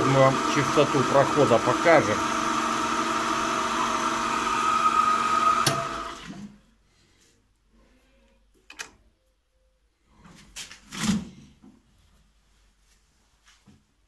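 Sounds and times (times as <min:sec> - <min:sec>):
drill press motor running: 0:00.0 - 0:06.4.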